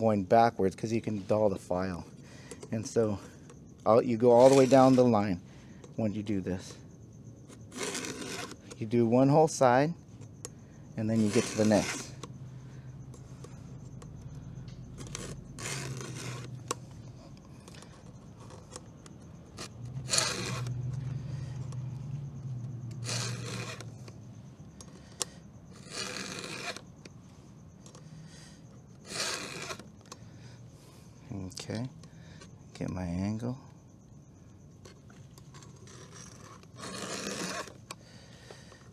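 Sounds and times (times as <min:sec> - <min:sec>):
file rasping on saw chain: 0:04.2 - 0:05.3, 0:07.5 - 0:08.8, 0:11.0 - 0:12.3, 0:15.0 - 0:16.5, 0:19.5 - 0:20.8, 0:23.0 - 0:23.9, 0:25.7 - 0:26.9, 0:28.9 - 0:29.8, 0:35.5 - 0:37.8.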